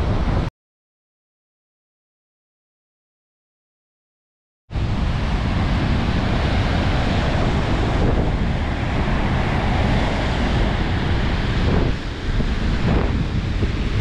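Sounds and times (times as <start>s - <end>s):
sea surf rushing: 0.0s - 0.5s, 4.7s - 14.0s
wind buffeting microphone: 0.0s - 0.5s, 4.7s - 14.0s.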